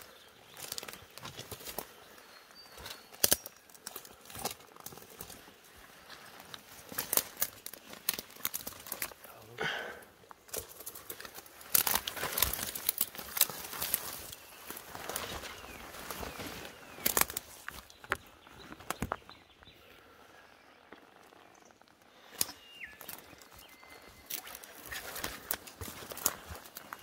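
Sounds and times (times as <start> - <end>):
twigs snapping: 0.0 - 9.3, 10.2 - 19.3, 22.2 - 27.0
footsteps crunching dry leaves: 10.6 - 17.9, 22.2 - 27.0.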